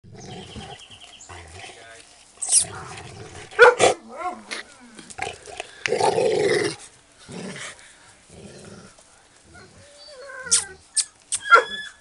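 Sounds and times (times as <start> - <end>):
dogs growling: 0.0 - 10.2
puppy whine: 9.5 - 12.0.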